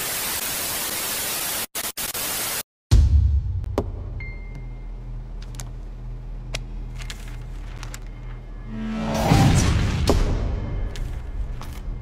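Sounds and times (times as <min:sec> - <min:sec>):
low film score drone: 0:03.0 - 0:12.0.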